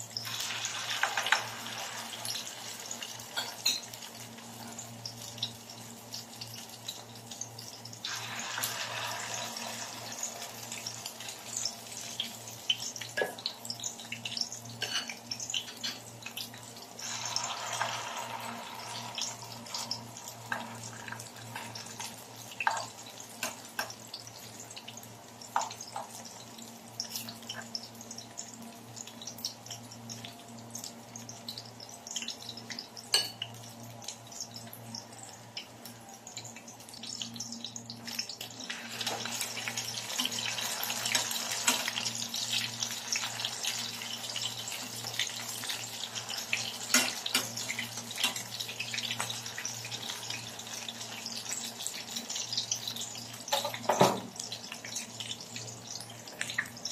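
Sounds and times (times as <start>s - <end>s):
fritters sizzling in oil: 0.0s - 56.9s
utensils tapping on pan: 46.8s - 48.6s, 53.5s - 54.3s.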